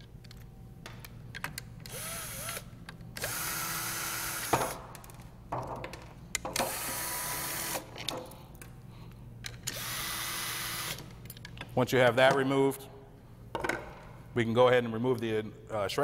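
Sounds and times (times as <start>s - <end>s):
cordless drill motor whine: 1.9s - 4.5s, 9.7s - 11.0s.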